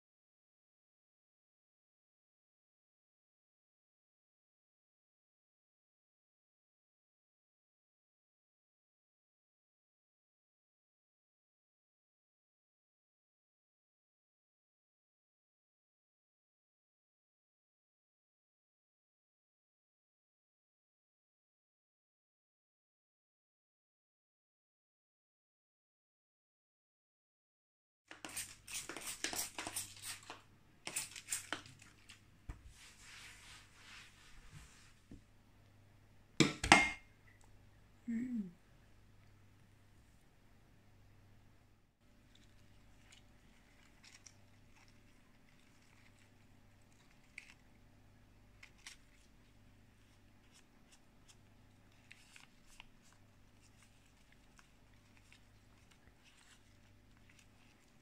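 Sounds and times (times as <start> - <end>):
rustling and crinkling: 28.1 - 35.3, 42.1 - 47.7, 48.5 - 58.0.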